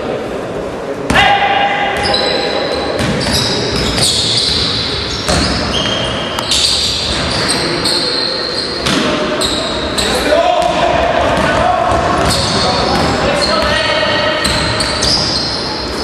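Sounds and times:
sneakers squeaking on floor: 2.0 - 16.0
basketball bouncing on floor: 5.3 - 6.0, 10.6 - 13.7, 14.4 - 15.2.

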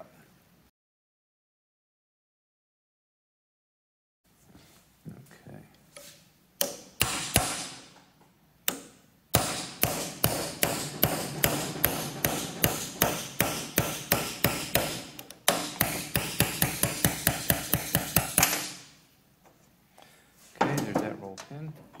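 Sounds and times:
hammer striking metal punch: 6.6 - 7.9, 8.7 - 19.0.

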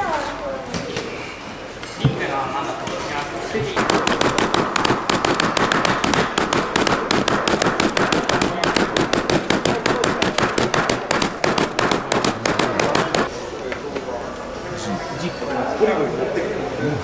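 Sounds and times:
hammer pounding coffee beans: 3.7 - 13.3.

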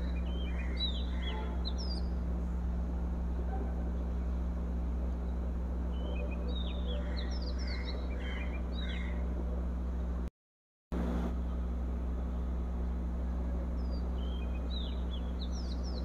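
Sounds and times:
small birds chirping: 0.0 - 4.5, 5.1 - 9.4, 12.2 - 16.0
steady low hum with hiss: 0.0 - 10.3, 11.0 - 16.0.

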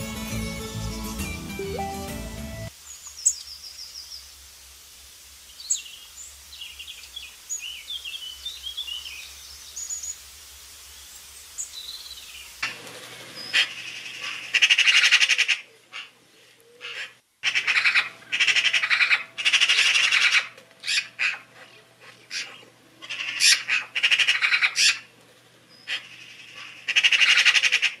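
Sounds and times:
songbird singing trilled phrases: 5.6 - 10.2.

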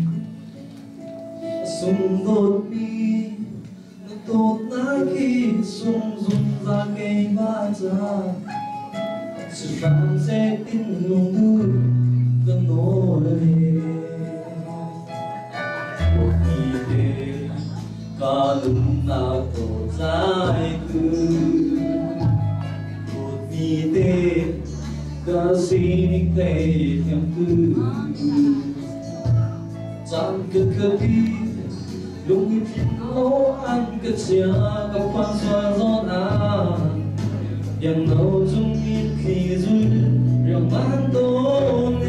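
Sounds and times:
man singing into a microphone: 0.0 - 0.4, 1.5 - 42.0
instrumental backing music: 0.0 - 42.0
deep bass notes: 16.0 - 42.0.

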